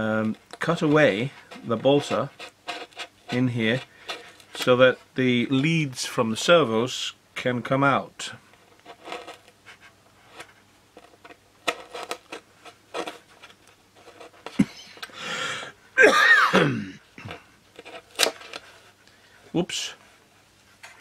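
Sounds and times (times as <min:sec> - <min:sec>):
breathy sound: 0:15.1 - 0:15.8.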